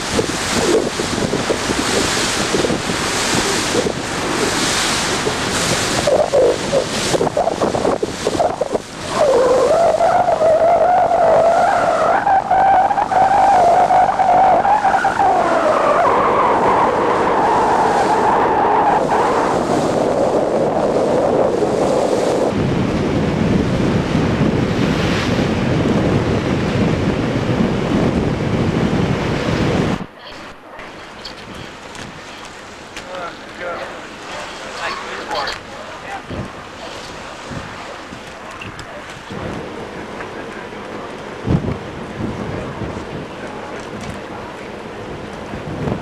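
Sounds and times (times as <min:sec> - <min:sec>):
rushing water: 0:00.0 - 0:46.0
rushing wind: 0:00.0 - 0:46.0
boat engine whining: 0:01.7 - 0:20.6.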